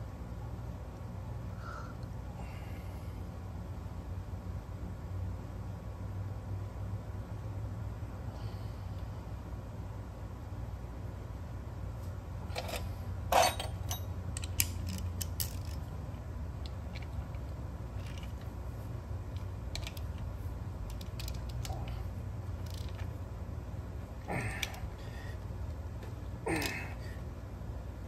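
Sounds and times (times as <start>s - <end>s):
metal bolts clinking: 12.5s - 15.8s.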